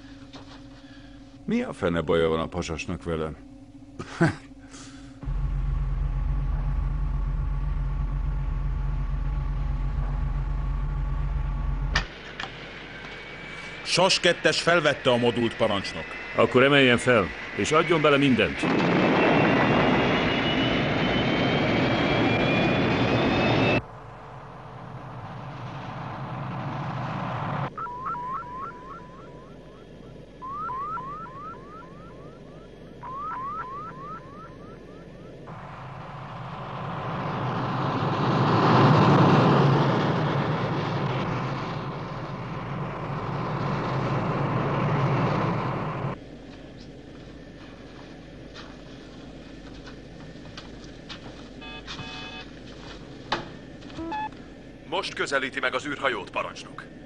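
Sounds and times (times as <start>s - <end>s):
thin rising whine: 4.9s - 50.0s
rocket engines roaring: 5.2s - 46.5s.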